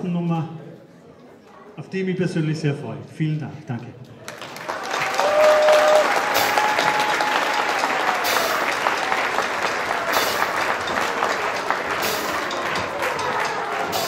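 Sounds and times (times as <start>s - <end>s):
audience applause: 4.2s - 14.0s.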